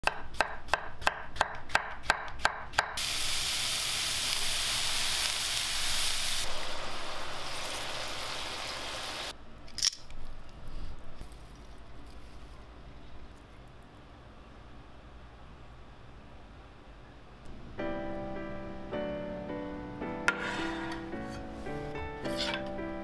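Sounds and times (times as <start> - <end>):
food sizzling in frying pan: 3.0 - 9.3.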